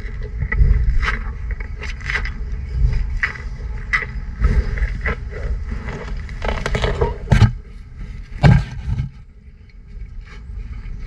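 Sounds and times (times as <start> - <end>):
rhinos crunching pumpkin: 0.0 - 11.0
loud thumps: 8.4 - 9.2.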